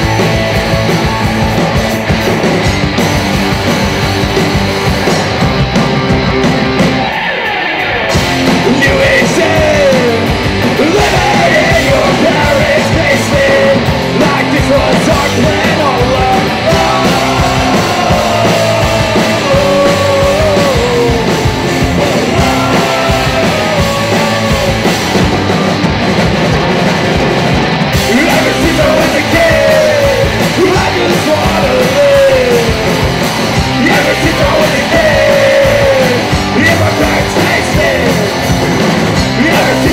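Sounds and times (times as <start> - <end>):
drum kit: 0.0 - 39.9
electric guitars: 0.0 - 39.9
person singing: 7.1 - 25.1, 28.0 - 38.4, 39.3 - 39.9.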